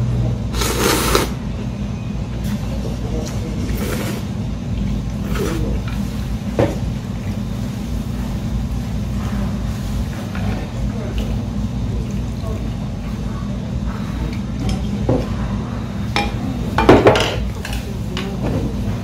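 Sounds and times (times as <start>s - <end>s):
slurping broth from a spoon: 0.5s - 1.4s, 3.6s - 4.4s, 5.1s - 6.3s.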